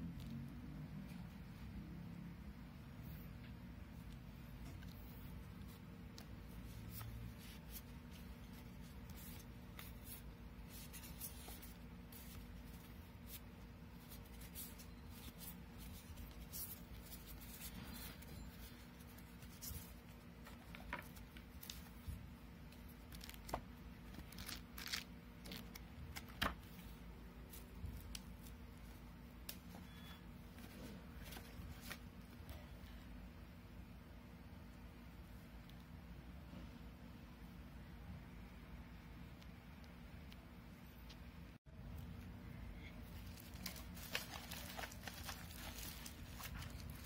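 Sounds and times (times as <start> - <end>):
steady low hum: 0.0 - 47.0
cards rustling being flipped: 5.6 - 29.8, 30.6 - 32.1, 43.1 - 47.0.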